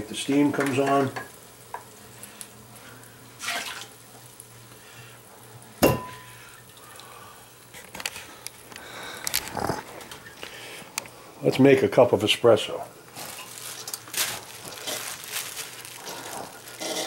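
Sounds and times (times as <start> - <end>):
dishware clattering down: 5.8 - 6.3.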